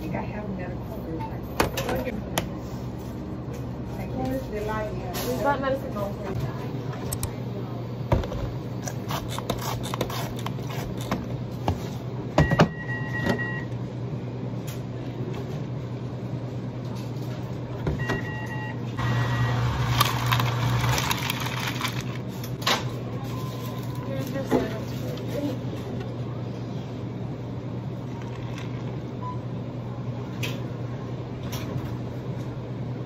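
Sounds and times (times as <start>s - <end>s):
low equipment hum: 0.0s - 33.0s
ice rattling into plastic cup: 19.9s - 22.2s.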